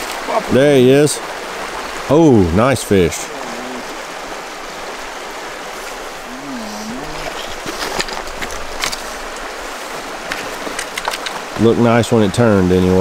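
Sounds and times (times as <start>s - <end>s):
river running over rocks: 0.0s - 13.0s
sharp clicks or splashes: 10.2s - 11.7s.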